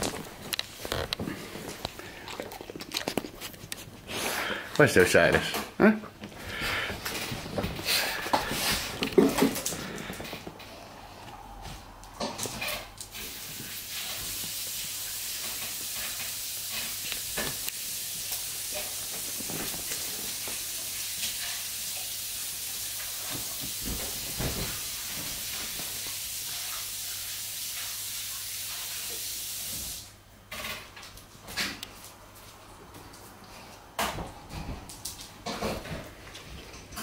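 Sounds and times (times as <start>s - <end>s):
steady hiss: 6.4s - 30.2s
dog moving on sofa: 19.0s - 20.6s, 23.2s - 26.0s.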